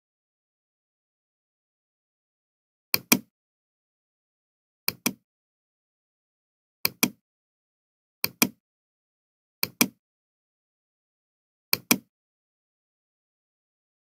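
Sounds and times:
computer mouse clicking: 3.0 - 3.3, 4.9 - 5.2, 6.9 - 7.2, 8.2 - 8.6, 9.6 - 10.0, 11.8 - 12.1.

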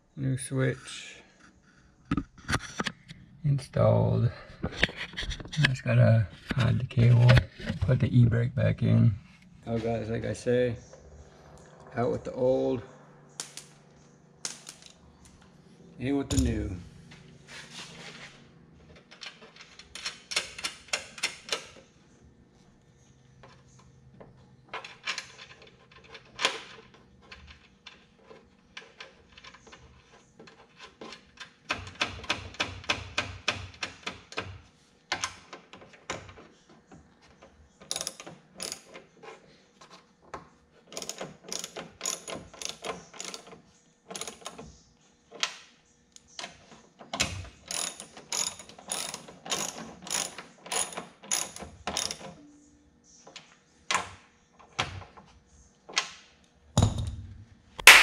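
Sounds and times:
ratchet wrench clicking: 41.0 - 43.5, 47.7 - 52.3.

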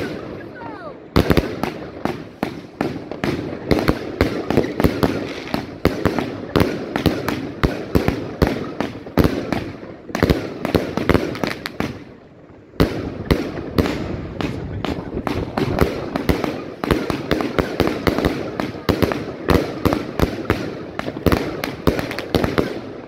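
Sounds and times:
firework cake firing: 0.0 - 23.0.

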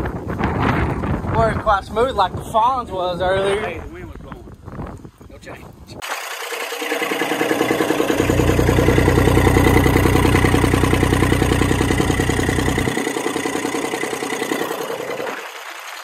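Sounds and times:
diesel engine running: 6.4 - 15.6
deep rumble: 7.5 - 15.3.

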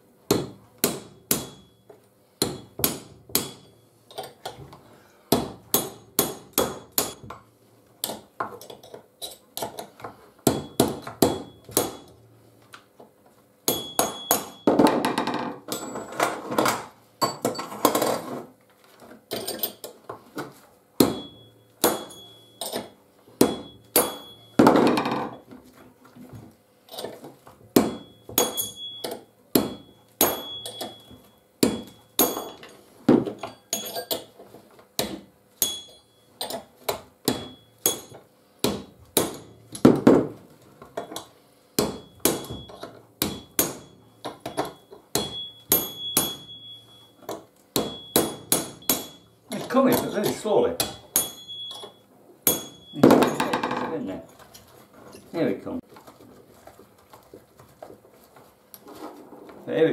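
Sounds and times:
hammer striking metal chisel: 0.3 - 4.6, 5.3 - 12.2, 13.6 - 16.0, 21.0 - 25.4, 27.8 - 34.4, 35.0 - 40.2, 41.0 - 53.8.

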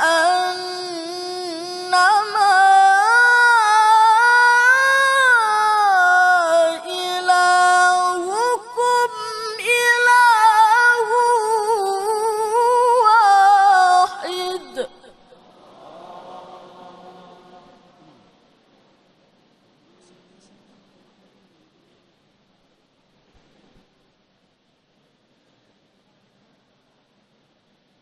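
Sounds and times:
man chanting recitation: 0.0 - 18.0.

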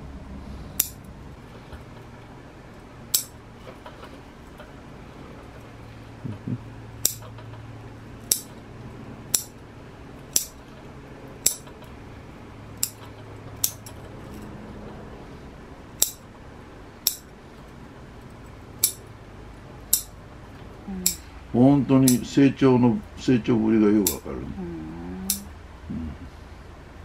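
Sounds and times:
faint low hum: 0.0 - 27.0
scissors snipping: 0.8 - 1.0, 8.3 - 8.6, 10.3 - 10.6, 12.8 - 14.0, 22.0 - 22.3, 24.0 - 24.2, 25.3 - 25.5.

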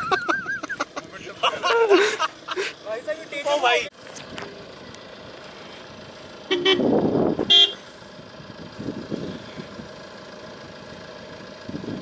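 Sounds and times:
engine noise rush: 0.0 - 12.0
engine running: 0.0 - 12.0
car horn toots: 6.5 - 7.8.

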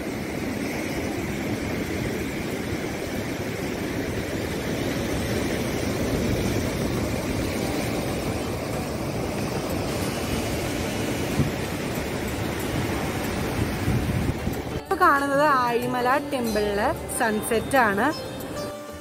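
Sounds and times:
surf breaking over rocks: 0.0 - 14.8
wind rumbling on microphone: 0.0 - 14.9.

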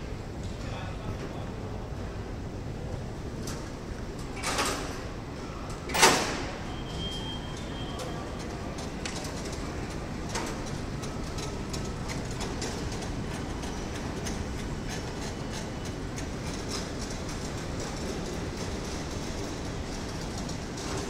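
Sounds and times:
rolling suitcases rattling: 6.9 - 21.0.

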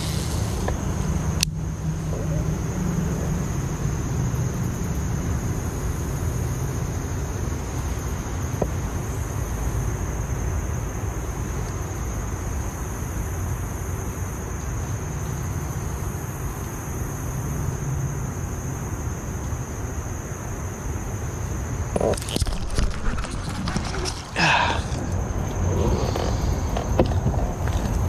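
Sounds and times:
wind rumble on microphone: 21.9 - 28.0.

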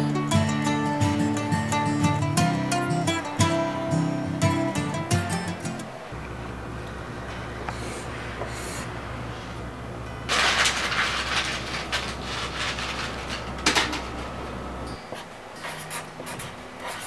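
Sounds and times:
steady low hum: 0.0 - 17.0
paper rustling: 10.3 - 14.3
pen scribbling on paper: 15.6 - 17.0.

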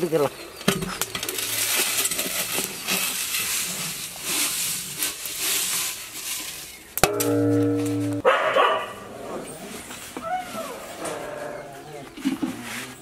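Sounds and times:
sand pouring into metal vessel: 1.3 - 6.9
low hum: 7.1 - 8.3.

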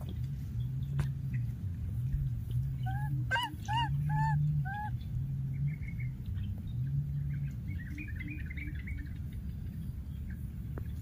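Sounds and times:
low hum: 0.0 - 11.0
baby monkey coo call: 2.8 - 5.0
high bird-like chirps: 2.9 - 4.9.

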